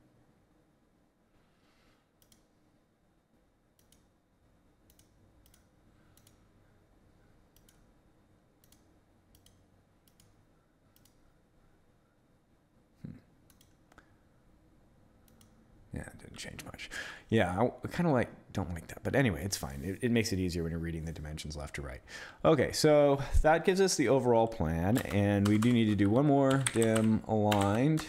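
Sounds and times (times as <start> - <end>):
faint computer mouse clicks: 2.2 - 2.5, 3.8 - 4.1, 4.9 - 6.4, 7.6 - 7.9, 8.6 - 10.4, 11.0 - 11.2, 13.5 - 14.1, 15.3 - 15.6.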